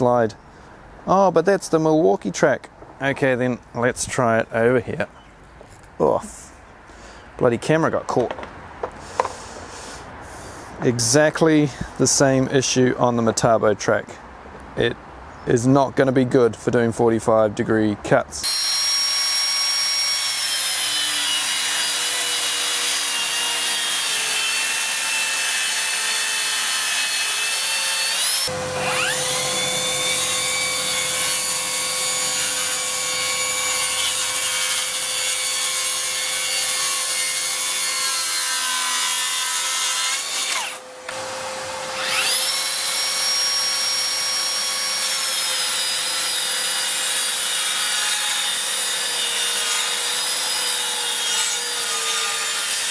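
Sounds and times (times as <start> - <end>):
saw blade cutting board: 18.4 - 52.9
track saw motor whine: 25.7 - 34.1, 40.2 - 46.8.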